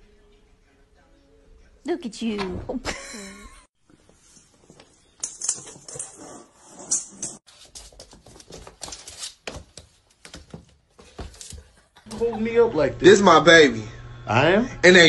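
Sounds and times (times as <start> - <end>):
cat paws scrabbling on wooden floor: 7.5 - 12.0.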